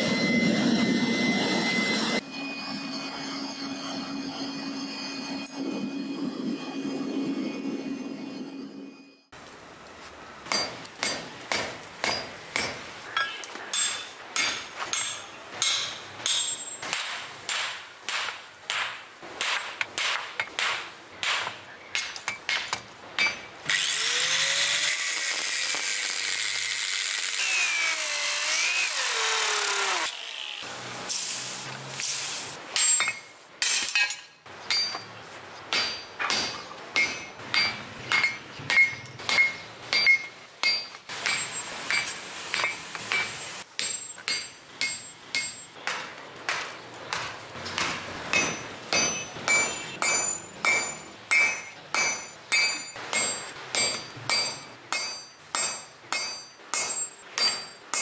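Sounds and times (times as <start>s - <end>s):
hammer striking steel on anvil: 10.5s - 23.5s, 32.7s - 35.1s, 35.7s - 58.0s
angle grinder cutting steel: 23.7s - 32.2s.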